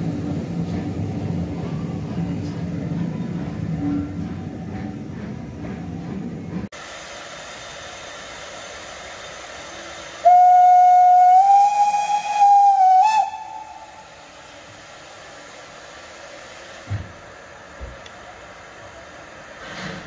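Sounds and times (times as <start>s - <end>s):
steam hissing: 0.0s - 20.0s
steam locomotive whistle: 10.2s - 14.3s.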